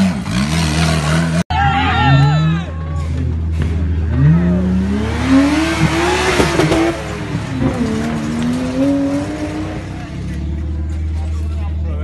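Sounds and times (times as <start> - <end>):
off-road engine revving hard: 0.0 - 1.4, 3.0 - 10.7.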